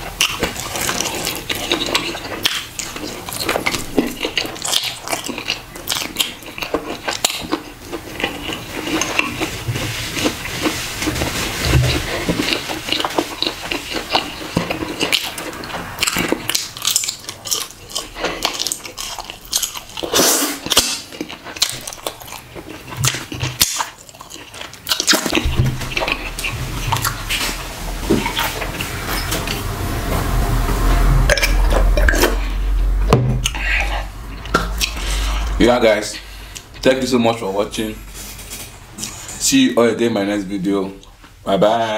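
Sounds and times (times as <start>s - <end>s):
chewing and lip-smacking: 0.0s - 29.6s
steady low hum: 24.1s - 41.4s.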